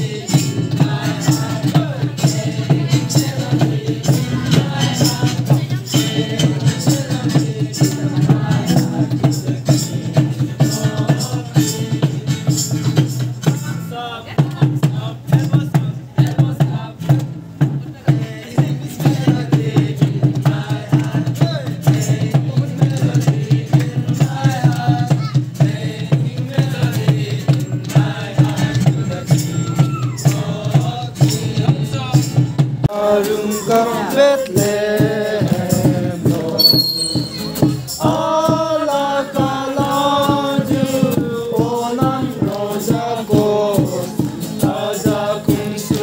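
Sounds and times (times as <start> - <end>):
voices singing: 0.0 - 17.1, 17.9 - 46.0
music with steady beat: 18.6 - 46.0.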